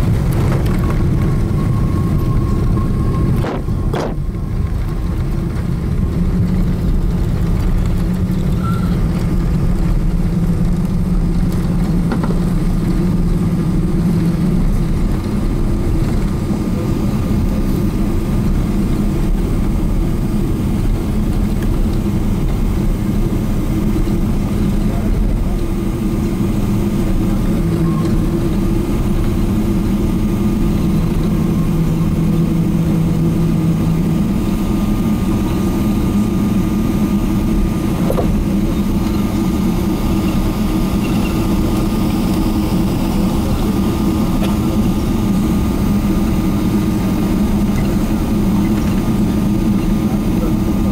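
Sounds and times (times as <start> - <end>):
airplane cabin engine drone: 0.0 - 50.9.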